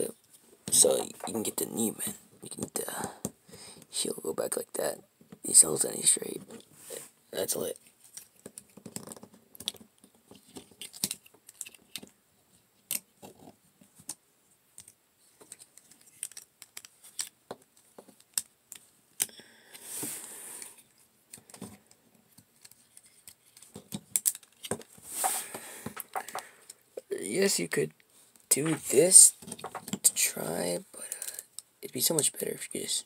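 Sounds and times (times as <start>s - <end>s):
plastic action figure joints clicking: 15.5s - 17.3s
short rustle: 25.0s - 26.4s.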